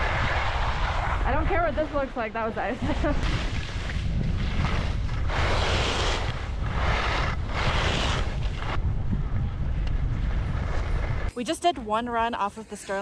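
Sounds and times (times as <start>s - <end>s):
skis scraping icy snow: 0.0s - 8.8s
wind rumble on microphone: 0.0s - 11.3s.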